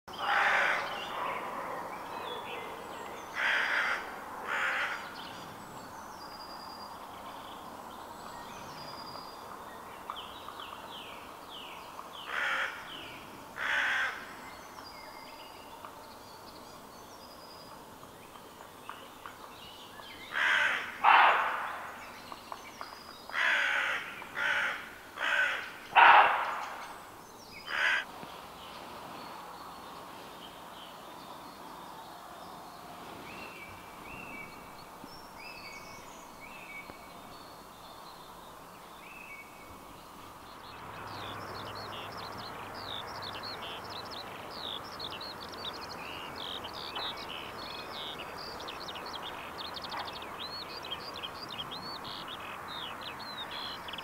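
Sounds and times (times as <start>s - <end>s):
small birds singing faintly: 0.0s - 54.0s
crow cawing: 0.2s - 1.0s, 3.4s - 5.1s, 12.3s - 12.9s, 13.6s - 14.2s, 20.3s - 21.9s, 23.3s - 26.8s, 27.7s - 28.1s.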